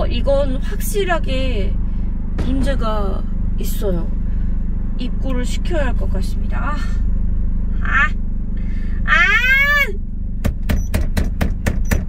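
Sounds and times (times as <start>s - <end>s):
car engine idling: 0.0s - 12.0s
exasperated vocal cry: 7.8s - 8.2s, 9.0s - 10.0s.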